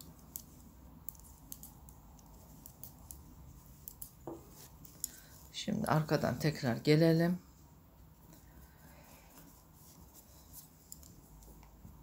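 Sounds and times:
knitting needles clicking: 0:00.0 - 0:05.5, 0:10.5 - 0:11.8.

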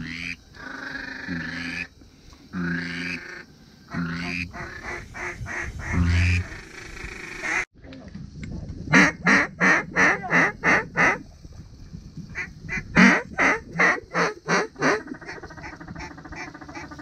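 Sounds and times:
faint quacking: 0:02.5 - 0:07.7, 0:08.9 - 0:11.2, 0:12.4 - 0:17.0
duck quacking: 0:02.6 - 0:07.7, 0:08.9 - 0:11.2, 0:12.4 - 0:17.0.

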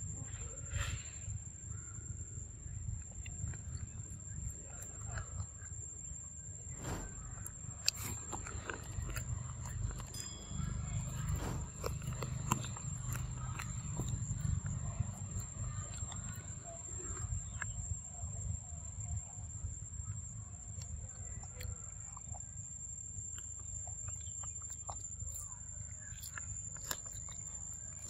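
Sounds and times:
low steady rumble: 0:01.2 - 0:26.7
monkey chewing and biting: 0:07.0 - 0:18.0, 0:23.2 - 0:28.0.

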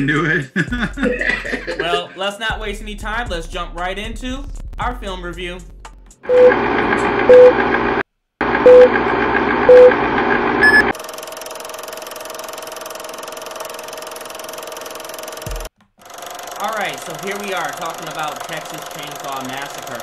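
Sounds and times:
higher beep: 0:06.3 - 0:06.6, 0:07.3 - 0:07.6, 0:08.6 - 0:08.9, 0:09.7 - 0:10.0, 0:10.6 - 0:10.9
short beeps: 0:06.3 - 0:06.6, 0:07.3 - 0:07.6, 0:08.7 - 0:08.9, 0:09.7 - 0:10.0, 0:10.6 - 0:10.9
film projector clatter: 0:08.5 - 0:20.0.

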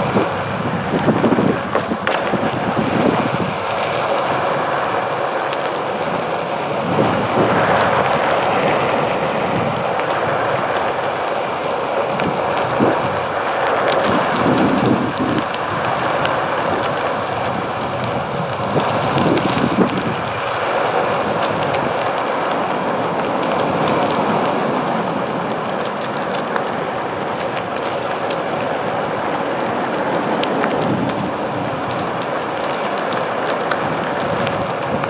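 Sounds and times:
tyre noise on pavement: 0:00.0 - 0:35.0
wind on microphone: 0:00.0 - 0:35.0.

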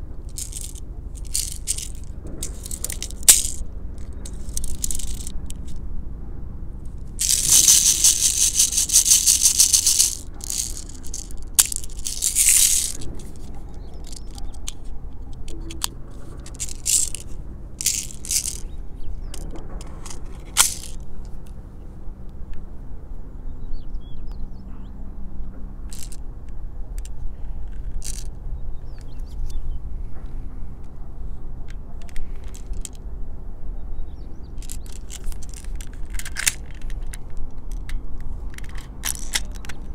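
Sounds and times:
plastic toy pistol rattling: 0:00.3 - 0:05.8, 0:07.0 - 0:18.7, 0:19.3 - 0:21.0, 0:25.9 - 0:26.2, 0:28.0 - 0:28.3, 0:32.1 - 0:33.0, 0:34.6 - 0:37.9, 0:38.5 - 0:39.9.

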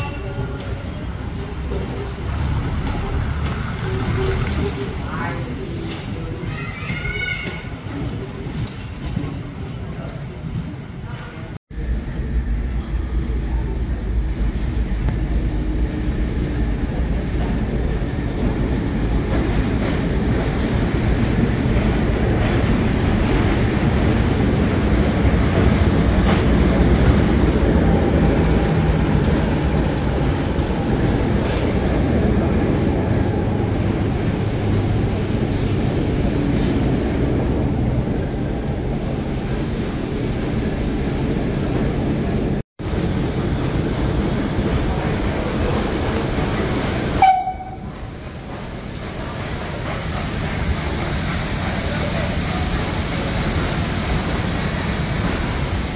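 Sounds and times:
diesel locomotive engine drone: 0:11.7 - 0:55.9.

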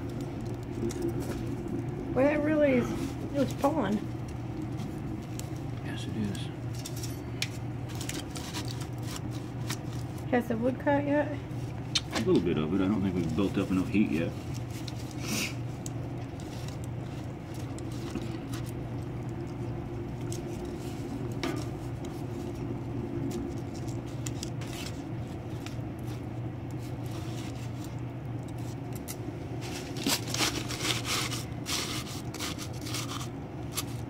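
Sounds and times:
fire crackling: 0:00.0 - 0:34.0
low hum: 0:00.0 - 0:34.0
sticks scraping against concrete: 0:28.5 - 0:34.0.

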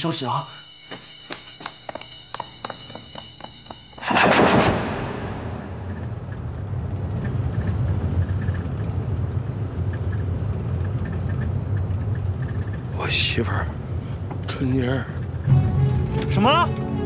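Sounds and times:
loud bang: 0:04.0 - 0:06.1
truck engine rumbling: 0:06.0 - 0:17.0.

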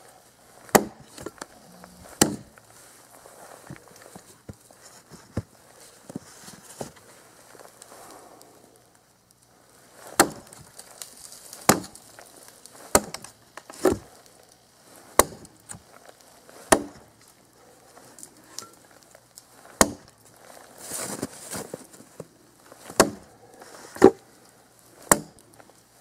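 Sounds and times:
tomahawk chopping into log: 0:00.7 - 0:01.3, 0:02.1 - 0:02.5, 0:10.2 - 0:10.5, 0:11.6 - 0:12.0, 0:12.9 - 0:13.2, 0:15.2 - 0:15.4, 0:16.7 - 0:17.0, 0:19.8 - 0:20.1, 0:22.9 - 0:23.2, 0:25.1 - 0:25.4.

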